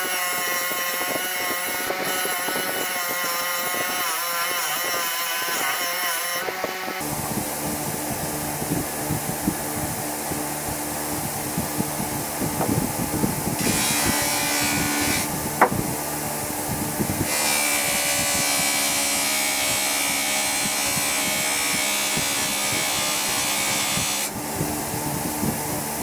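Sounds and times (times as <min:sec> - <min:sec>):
bench grinder motor humming: 0:00.0 - 0:08.5, 0:12.3 - 0:24.4.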